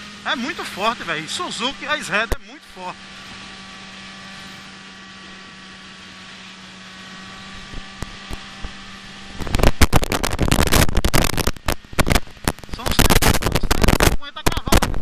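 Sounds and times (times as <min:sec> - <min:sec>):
motorcycle engine cruising: 0:00.0 - 0:15.0
wind buffeting microphone: 0:07.3 - 0:15.0.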